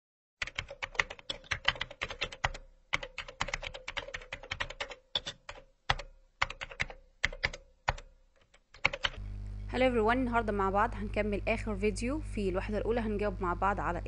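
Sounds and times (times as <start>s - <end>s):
keyboard typing clicks: 0.4s - 9.2s.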